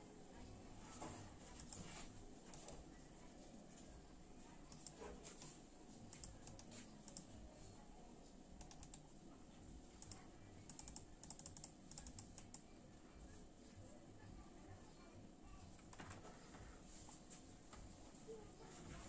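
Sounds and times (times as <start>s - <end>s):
mouse buttons clicking: 1.6s - 1.9s, 4.7s - 7.3s, 8.6s - 9.0s, 10.0s - 12.6s.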